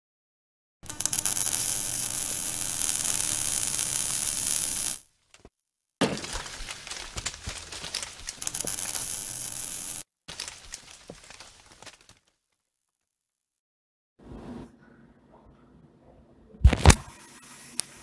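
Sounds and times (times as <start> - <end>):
crackling with small clicks: 0.8 - 5.5, 6.4 - 12.4.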